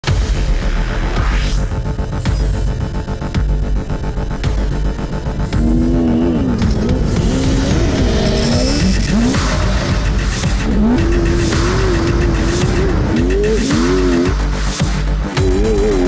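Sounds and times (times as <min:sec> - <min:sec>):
electronic music: 0:00.0 - 0:16.0
engine and tyre rumble: 0:01.7 - 0:16.0
buggy engine revving: 0:03.5 - 0:16.0.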